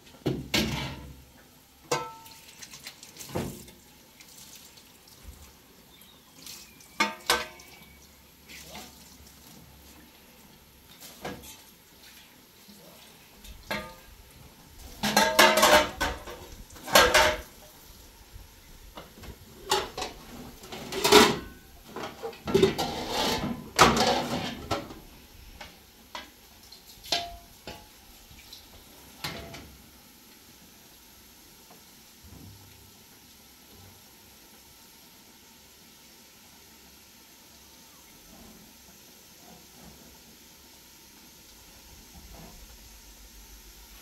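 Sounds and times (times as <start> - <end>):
dishes and pots clattering: 0.2 - 1.2, 1.8 - 2.4, 7.0 - 7.7, 11.1 - 11.7, 13.7 - 14.1, 14.9 - 17.6, 19.0 - 25.0, 27.0 - 28.0, 29.2 - 29.7.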